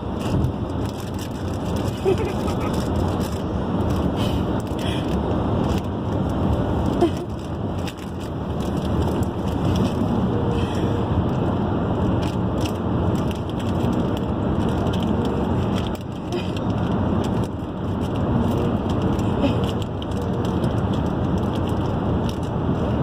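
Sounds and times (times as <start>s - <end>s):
car cabin road and engine noise: 0.0s - 23.0s
foil chip bag crinkling: 0.1s - 4.9s, 12.1s - 22.5s.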